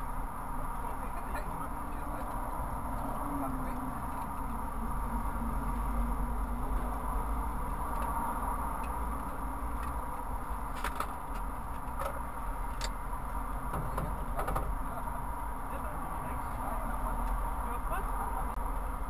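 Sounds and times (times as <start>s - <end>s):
low vehicle rumble: 0.0s - 19.0s
traffic passing: 0.0s - 19.0s.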